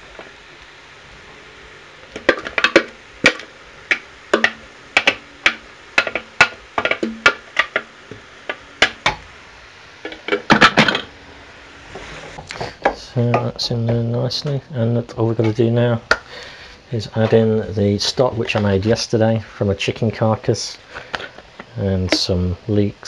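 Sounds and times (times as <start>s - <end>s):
wooden spoon knocking and scraping: 21.1s - 22.3s.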